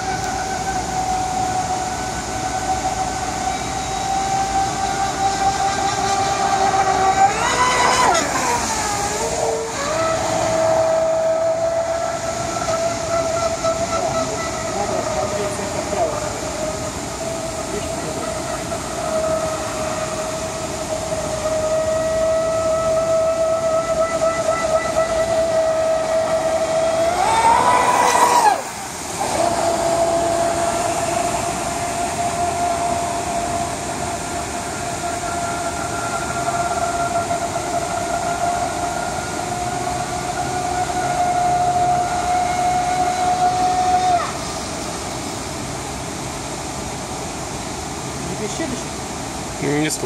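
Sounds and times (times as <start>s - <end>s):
boat motor high whine: 0.0s - 50.0s.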